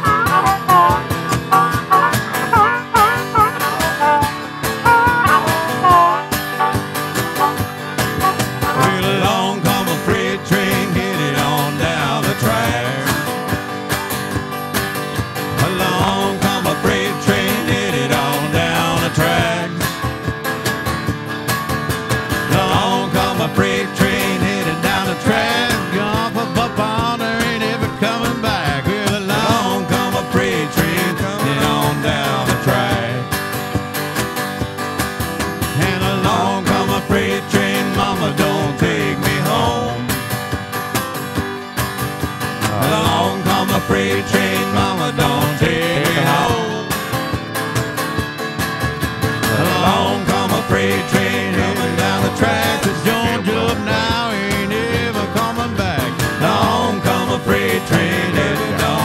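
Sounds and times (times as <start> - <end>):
harmonica: 0.0 - 9.4
electric guitar: 0.0 - 59.0
strummed acoustic guitar: 0.0 - 59.0.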